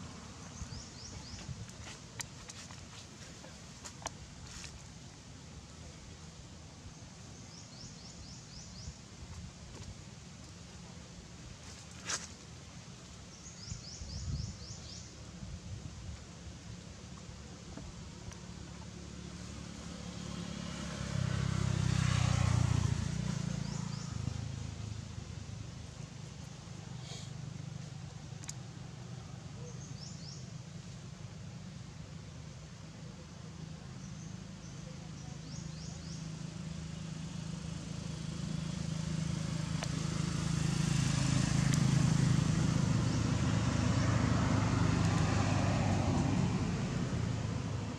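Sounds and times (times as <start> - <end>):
vehicle engine rumble passing: 16.4 - 47.9
vehicle engine running: 33.0 - 47.9.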